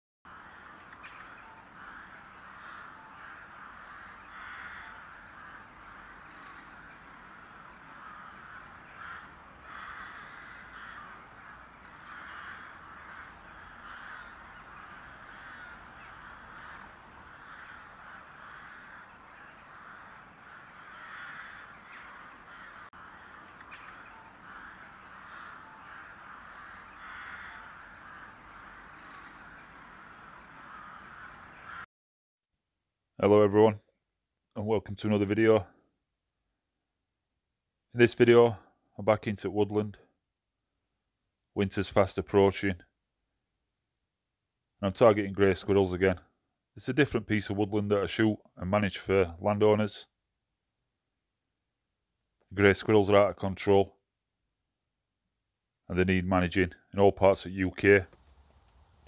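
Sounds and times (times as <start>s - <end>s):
crows cawing: 0.3s - 31.9s.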